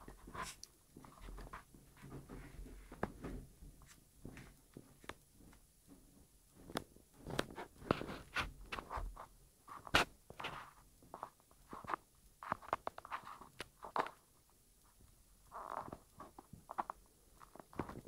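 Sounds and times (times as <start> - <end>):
faint clicks and knocks: 0.0 - 18.0
rustling: 6.6 - 18.0.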